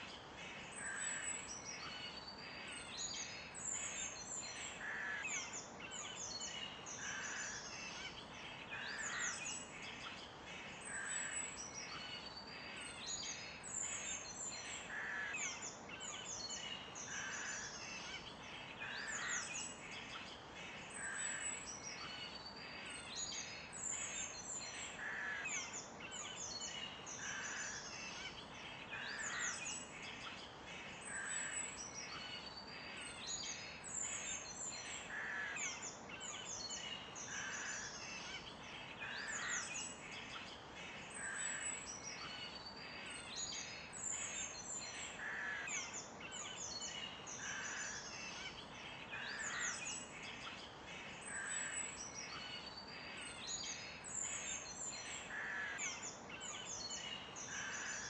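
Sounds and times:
birds chirping and trilling: 0:00.0 - 0:58.0
steady background hiss: 0:00.0 - 0:58.0.

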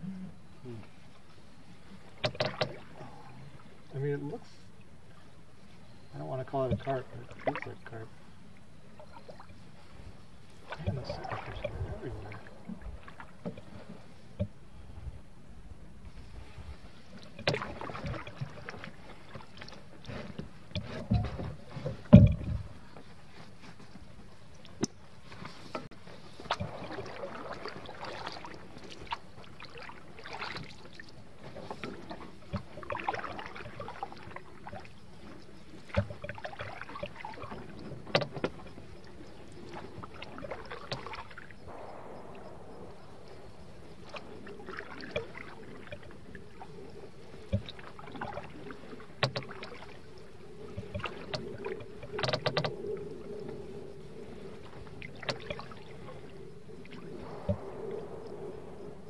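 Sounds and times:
paddle splashing in water: 0:01.2 - 0:08.2, 0:08.8 - 0:14.8, 0:16.0 - 0:59.0
paddle knocking on hull: 0:02.2 - 0:03.0, 0:06.6 - 0:07.7, 0:17.3 - 0:23.1, 0:24.7 - 0:39.0, 0:39.7 - 0:46.1, 0:47.4 - 0:50.0, 0:50.7 - 0:52.8.

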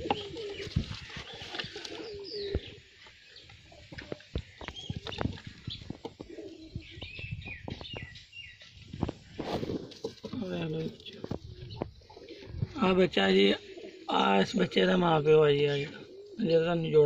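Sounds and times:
pigeons cooing: 0:00.0 - 0:17.0.

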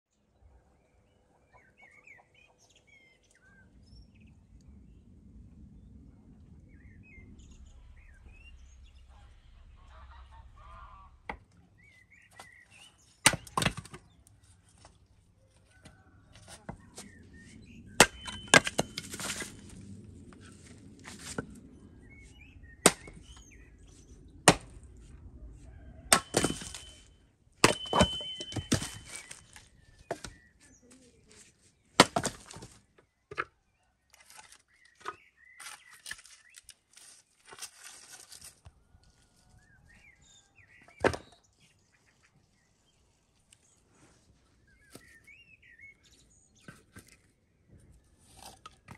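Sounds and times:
birds chirping: 0:00.1 - 0:36.9, 0:39.4 - 0:48.3
axe chopping firewood: 0:13.2 - 0:14.1, 0:17.9 - 0:19.6, 0:22.8 - 0:23.4, 0:24.5 - 0:24.8, 0:26.0 - 0:30.4, 0:32.0 - 0:33.5, 0:40.9 - 0:41.4
split wood knocking and falling: 0:13.3 - 0:14.0, 0:18.0 - 0:19.6, 0:22.8 - 0:23.4, 0:24.5 - 0:24.7, 0:26.1 - 0:30.4, 0:32.0 - 0:33.5, 0:40.8 - 0:41.4.

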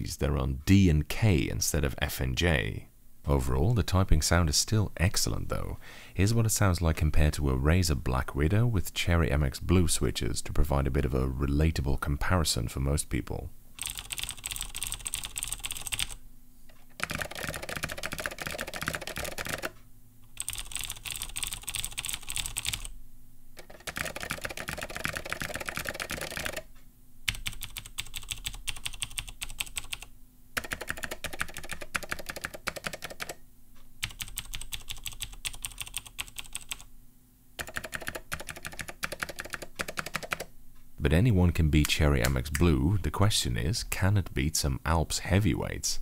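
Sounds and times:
clicky mechanical keyboard typing: 0:13.8 - 0:16.2, 0:17.0 - 0:22.9, 0:23.6 - 0:26.7, 0:27.3 - 0:33.4, 0:34.0 - 0:36.9, 0:37.6 - 0:40.5
lower mechanical keyboard typing: 0:13.8 - 0:16.2, 0:16.9 - 0:22.9, 0:23.6 - 0:26.7, 0:27.3 - 0:33.4, 0:34.0 - 0:36.9, 0:37.6 - 0:40.5.

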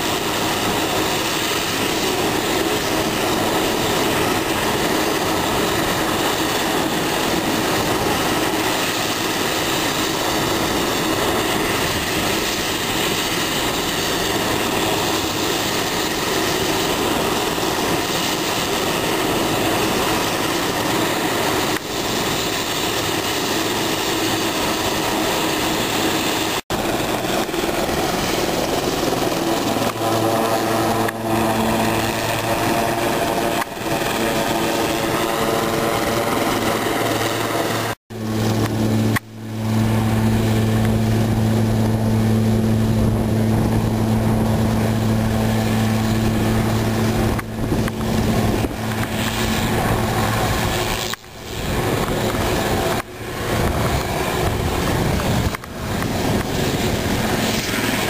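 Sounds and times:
helicopter engine and rotors: 0:00.0 - 0:58.0
steady low hum: 0:26.7 - 0:58.0.

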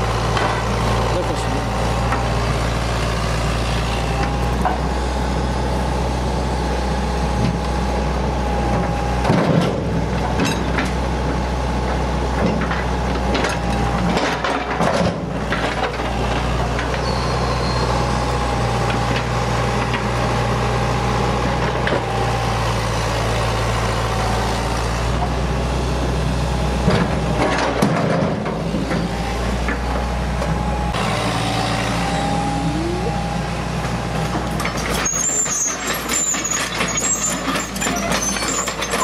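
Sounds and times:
diesel engine running: 0:00.0 - 0:39.0
hydraulic whine: 0:28.7 - 0:39.0.

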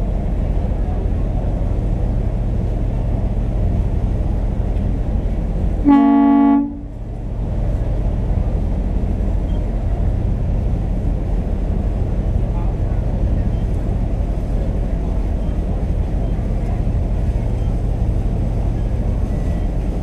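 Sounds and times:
low rumble of boat: 0:00.0 - 0:20.0
boat horn blast: 0:05.8 - 0:07.0.

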